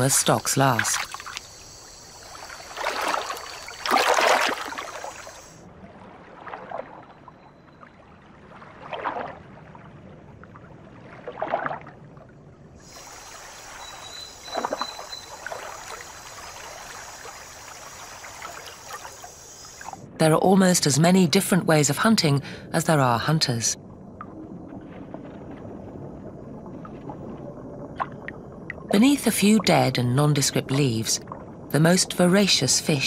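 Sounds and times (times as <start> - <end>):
water splashing: 0.0 - 7.1, 8.4 - 9.9, 12.8 - 20.0
low wash of moving water: 0.0 - 20.4, 23.7 - 29.0.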